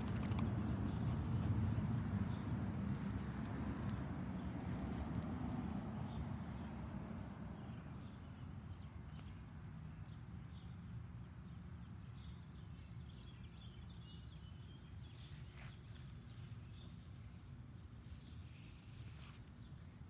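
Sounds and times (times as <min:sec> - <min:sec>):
dog rustling in grass: 0:00.2 - 0:03.3.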